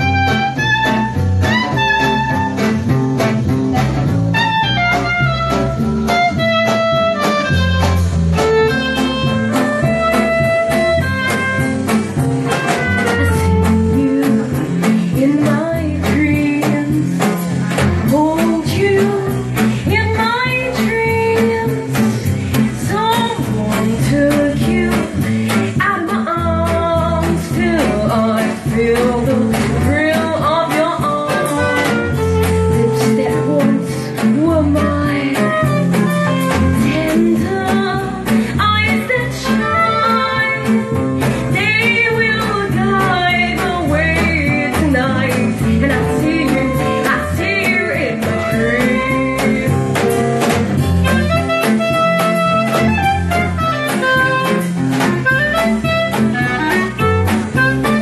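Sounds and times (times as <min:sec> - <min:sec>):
live band playing jazzy blues: 0:00.0 - 0:58.0
woman singing: 0:12.8 - 0:50.1.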